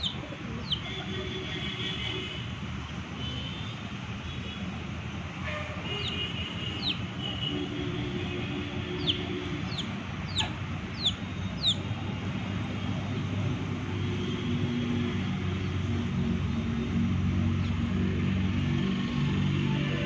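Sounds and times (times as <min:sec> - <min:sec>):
chick peeping: 0:00.0 - 0:00.9, 0:06.8 - 0:07.0, 0:09.0 - 0:11.8.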